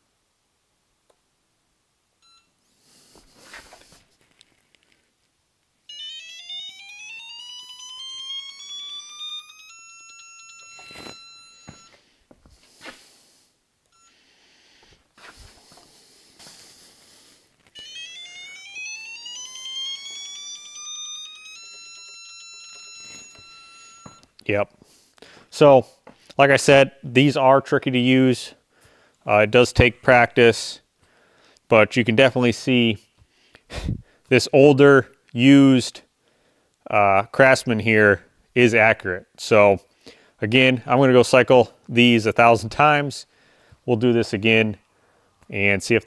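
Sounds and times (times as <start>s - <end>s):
handling rustles and clicks: 3.5s - 5.4s.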